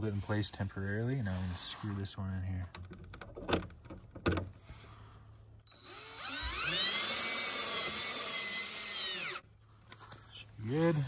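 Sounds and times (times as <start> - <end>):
cordless drill whining: 5.7 - 9.4.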